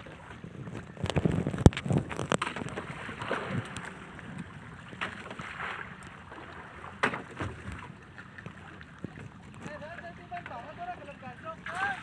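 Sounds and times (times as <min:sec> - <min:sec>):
wind on microphone: 0:00.0 - 0:05.0
water lapping against a kayak: 0:00.0 - 0:12.0.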